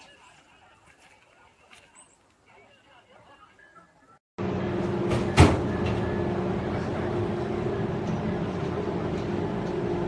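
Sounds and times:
cable car machinery humming: 4.4 - 10.0.

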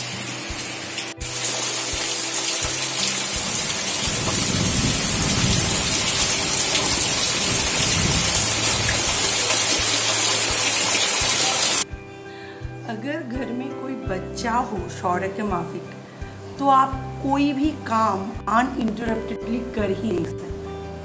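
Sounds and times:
heavy rain on trees and gravel: 0.0 - 11.8.

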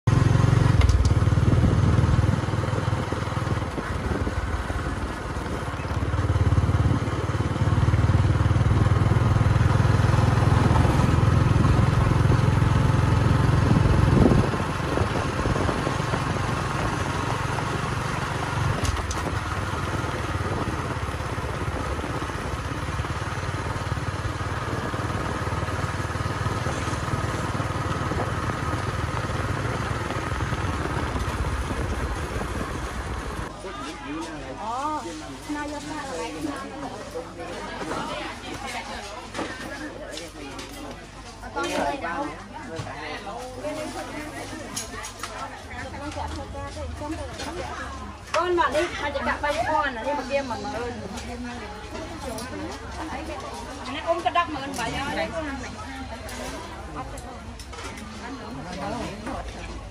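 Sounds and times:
motorbike engine droning: 0.1 - 33.5
wind and road noise rumble: 0.1 - 33.5.

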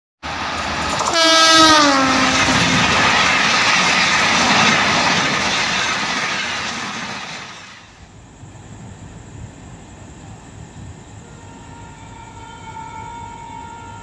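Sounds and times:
train coaches rushing and clattering: 0.2 - 8.0
locomotive horn blaring: 1.0 - 2.7, 11.2 - 14.0.

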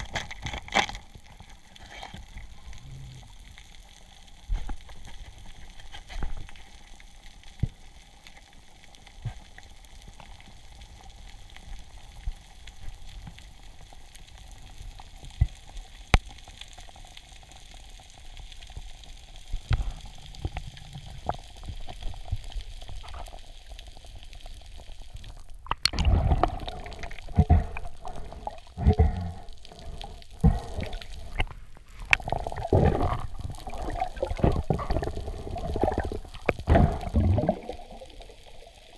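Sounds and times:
bubbling: 19.4 - 38.9
underwater hiss: 26.0 - 38.9.

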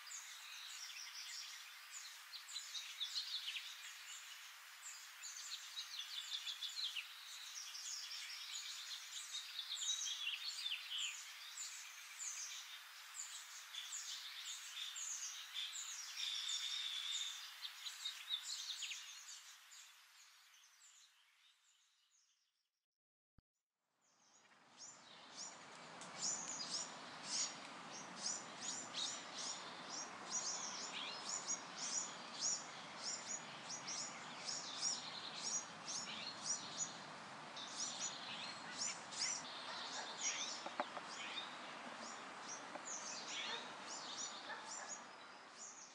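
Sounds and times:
steady background hiss: 0.0 - 21.3, 24.4 - 45.9
birds chirping: 24.8 - 45.9.

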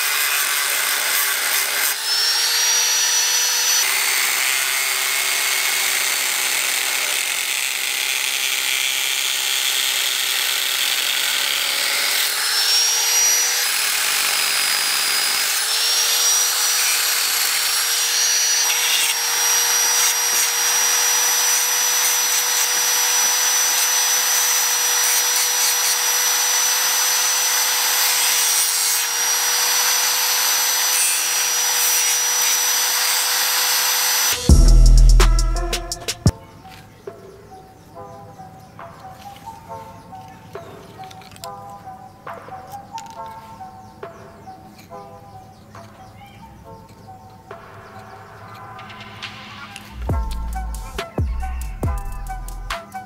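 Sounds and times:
angle grinder cutting plastic: 0.0 - 36.3.

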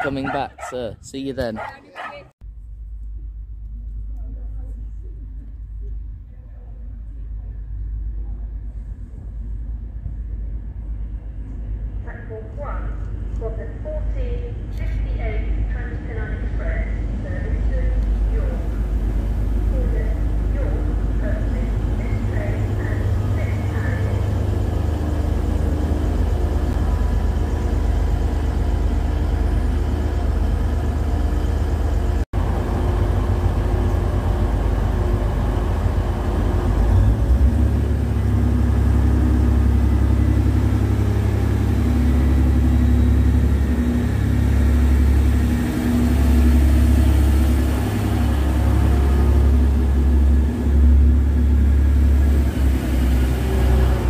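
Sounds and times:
diesel train engine rumbling: 0.0 - 54.0.

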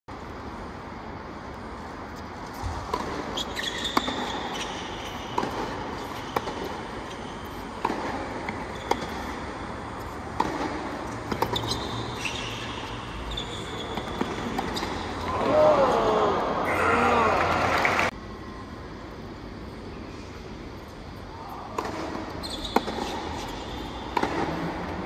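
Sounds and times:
shoes squeaking on court: 2.1 - 15.3, 21.8 - 24.9
racket hitting tennis ball: 2.5 - 11.8, 13.7 - 15.2, 21.7 - 25.0.

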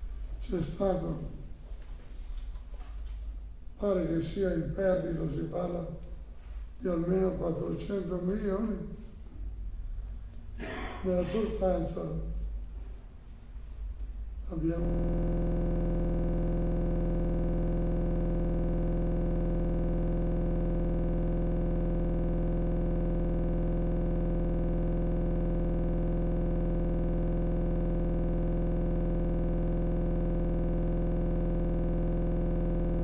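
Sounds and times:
loud electronic buzz: 14.4 - 33.0.

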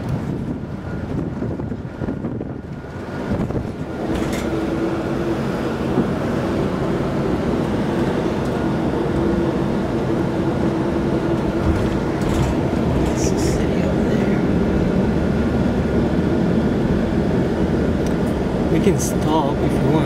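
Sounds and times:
car road and engine rumble: 0.0 - 20.0.

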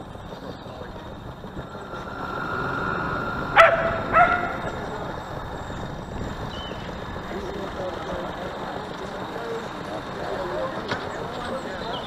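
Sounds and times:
dog barking: 3.6 - 4.6.

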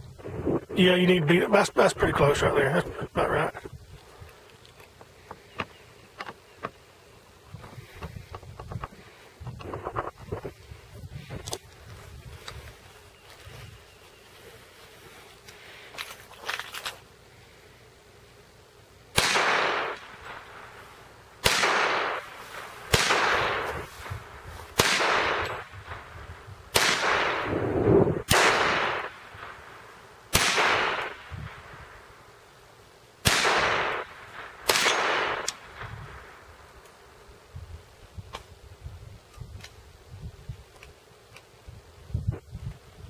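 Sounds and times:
pistol shots with echo: 19.2 - 20.2, 21.4 - 22.2, 22.9 - 23.7, 24.8 - 25.6, 26.7 - 27.5, 28.3 - 29.2, 30.3 - 31.3, 33.2 - 35.6.

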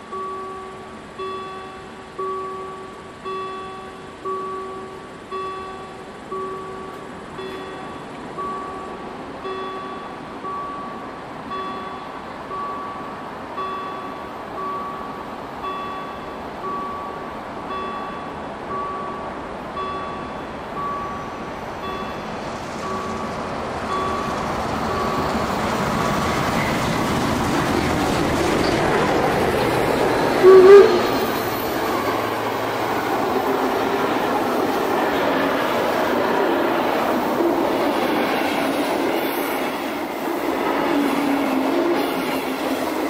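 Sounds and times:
level-crossing warning bell: 0.0 - 43.0
steam train passing: 0.0 - 43.0.

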